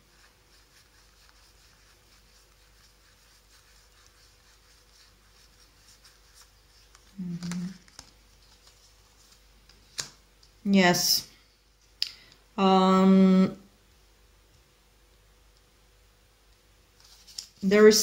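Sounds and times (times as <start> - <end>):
cards being shuffled: 0.1 - 10.6, 17.0 - 17.7
person humming: 7.2 - 7.8.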